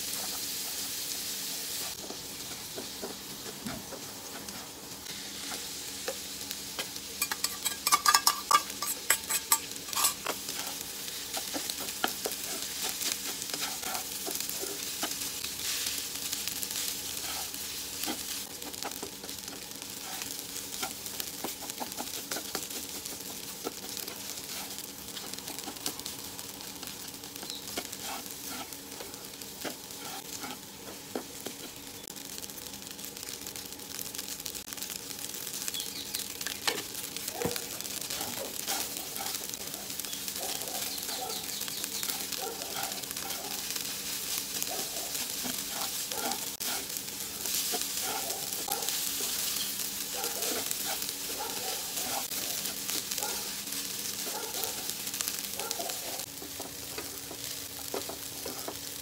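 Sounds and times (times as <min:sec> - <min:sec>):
fried rice sizzling in wok: 0:00.0 - 0:59.0
spatula scraping wok: 0:07.2 - 0:26.1, 0:26.8 - 0:31.8, 0:37.9 - 0:40.1, 0:40.8 - 0:54.2.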